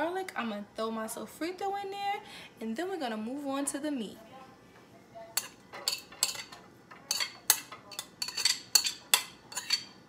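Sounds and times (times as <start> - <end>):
metal spoon clinking on ceramic plate: 5.4 - 10.0.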